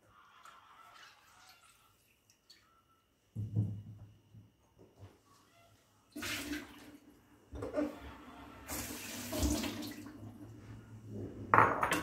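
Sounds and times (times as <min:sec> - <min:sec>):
kitchen tap running into sink: 0:08.7 - 0:10.2.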